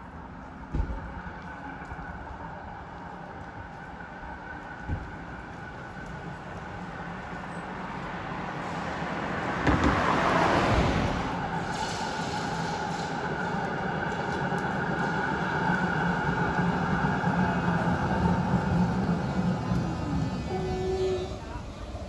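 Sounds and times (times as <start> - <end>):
tram running hum: 0.0 - 22.0
car passing tyre whoosh: 8.6 - 12.8.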